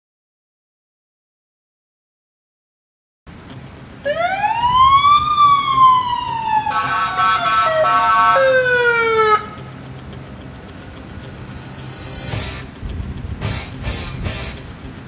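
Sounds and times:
siren winding up and falling: 4.1s - 9.6s
many-toned horn blast: 6.6s - 8.6s.

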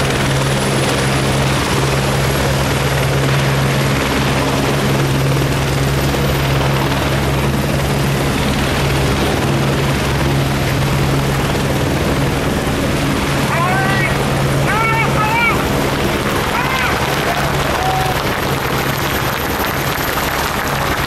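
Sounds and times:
helicopter rotor and engine drone: 0.0s - 21.0s.

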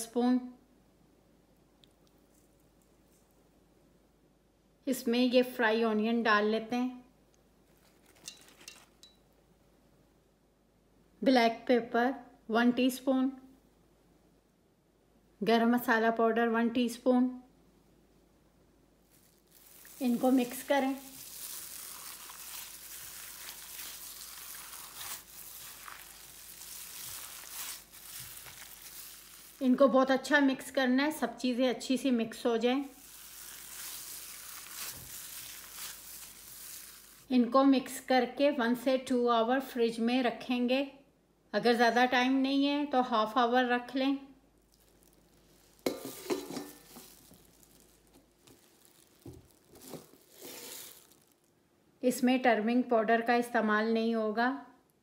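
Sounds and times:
knocks and handling noise: 7.7s - 9.2s, 45.8s - 51.0s
wet mixing of minced meat: 19.1s - 29.9s, 32.8s - 37.3s, 44.6s - 51.4s
steel bowls clinking and scraping: 45.8s - 47.3s.

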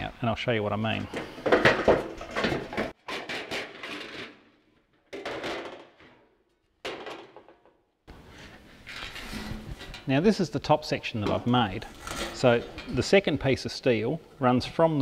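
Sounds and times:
metal sliding and clattering: 1.0s - 10.3s, 11.2s - 13.2s.

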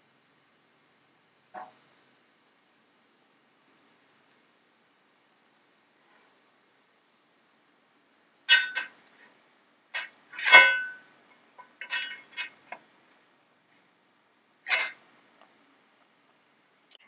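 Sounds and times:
metal skimmer clinking on wok: 8.5s - 8.9s.

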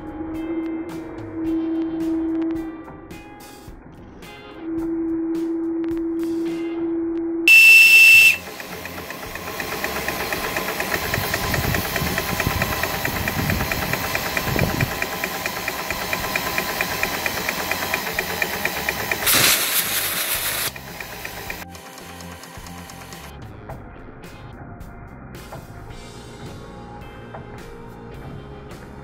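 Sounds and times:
steam whistle blast: 7.5s - 8.7s, 19.2s - 20.8s
steam engine running: 7.5s - 23.3s
steam hissing: 7.5s - 23.3s.

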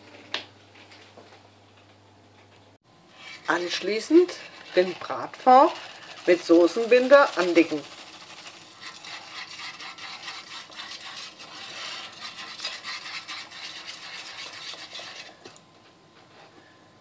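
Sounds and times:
whisk scraping metal pan: 3.1s - 15.6s.

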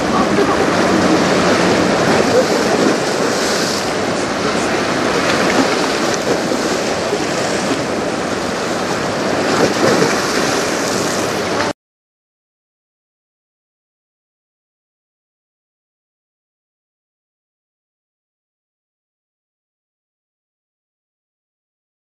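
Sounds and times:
river water washing against shore: 0.0s - 11.8s
wind: 0.0s - 11.8s.

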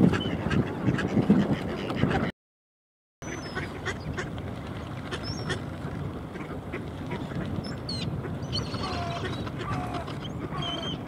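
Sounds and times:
ducks quacking: 0.0s - 2.3s, 3.2s - 4.3s, 8.2s - 11.0s.

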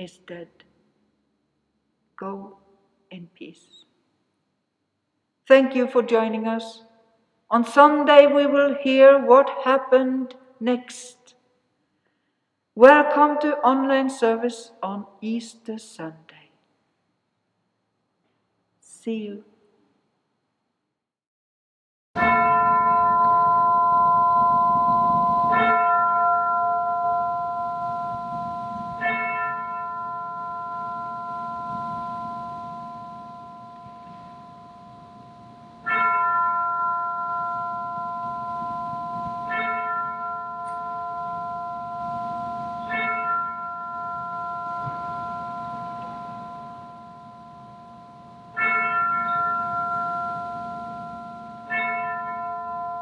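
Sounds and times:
bell tolling: 22.2s - 53.0s.

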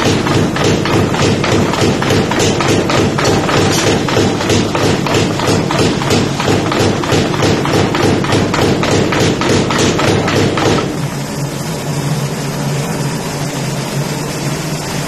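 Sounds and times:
power hammer pounding hot metal: 0.0s - 11.1s.

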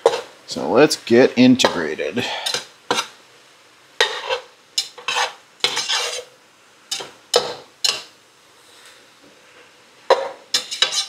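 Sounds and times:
utensil scraping a pan: 0.0s - 0.3s, 1.7s - 3.1s, 4.0s - 8.1s, 10.1s - 11.0s
faint sizzle: 0.0s - 11.0s.

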